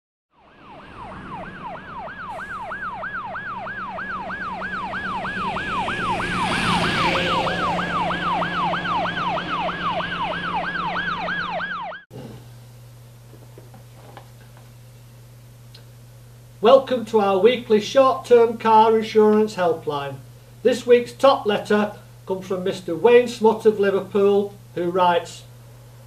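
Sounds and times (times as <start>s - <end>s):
emergency vehicle siren yelping: 0.3s - 12.1s.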